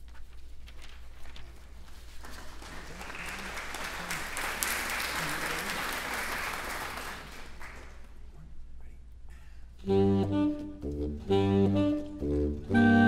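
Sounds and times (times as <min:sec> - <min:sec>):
audience applauding: 0:02.2 - 0:08.2.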